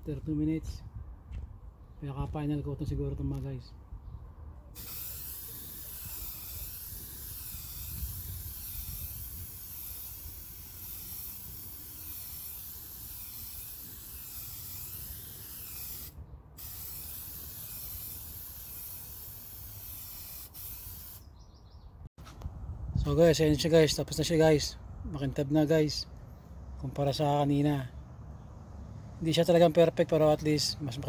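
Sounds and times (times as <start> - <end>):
aerosol can spraying: 4.8 - 21.2.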